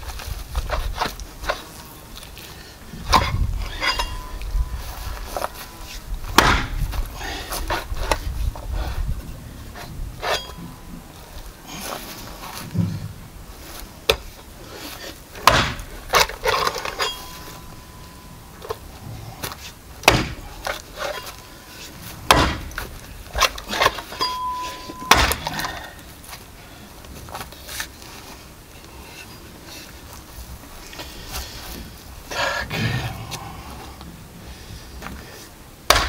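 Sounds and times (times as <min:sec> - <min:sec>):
axe chopping into bone: 0:06.4 - 0:06.8, 0:15.4 - 0:16.3, 0:20.0 - 0:20.8, 0:22.3 - 0:22.8, 0:25.1 - 0:25.7.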